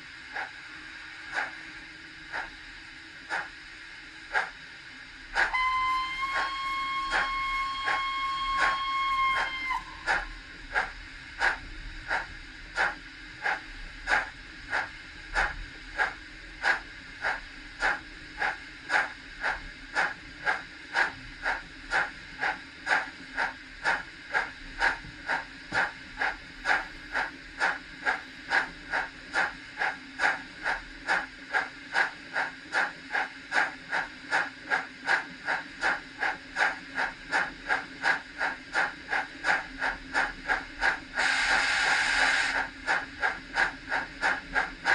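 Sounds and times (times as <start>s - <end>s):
model steam locomotive chuffing: 0.0s - 44.9s
short steam hiss: 41.2s - 42.6s.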